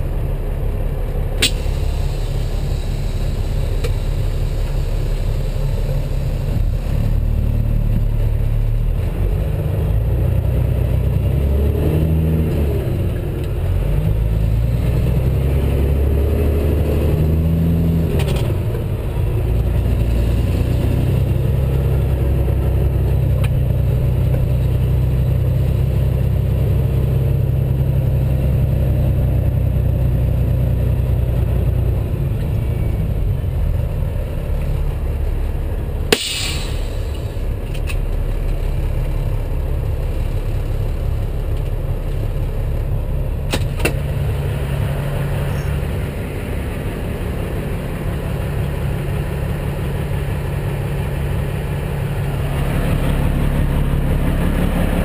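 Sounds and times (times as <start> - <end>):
truck diesel engine running: 0.0 - 55.0
sharp loud click: 1.4 - 1.9, 36.1 - 38.0, 43.5 - 44.0.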